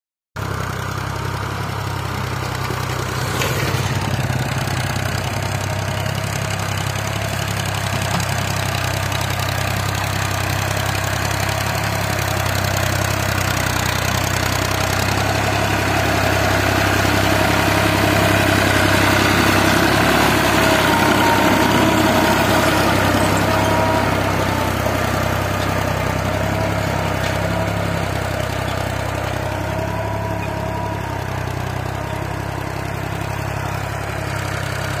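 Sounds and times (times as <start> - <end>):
diesel tractor engine running: 0.4 - 35.0.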